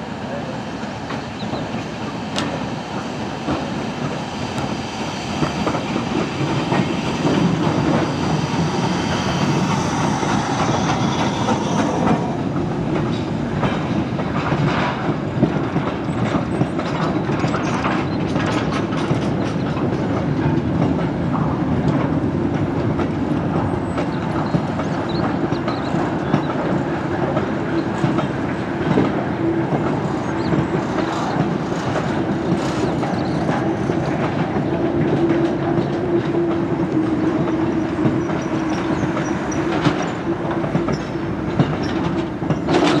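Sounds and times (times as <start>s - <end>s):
train wheels clattering over rail joints: 0.8s - 43.0s.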